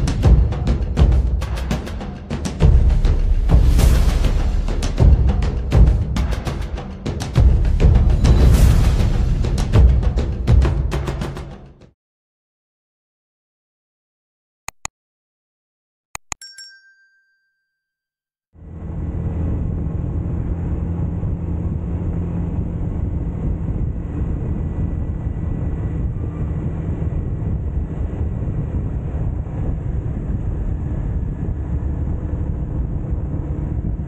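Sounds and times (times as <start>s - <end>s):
motorcycle engine hum: 18.6s - 34.0s
wind on microphone: 18.7s - 34.0s.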